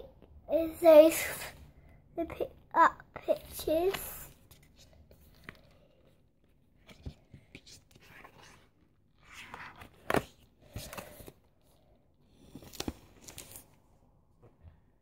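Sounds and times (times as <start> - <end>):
paper pages rustling: 3.5 - 5.8, 6.4 - 11.4, 12.4 - 13.8.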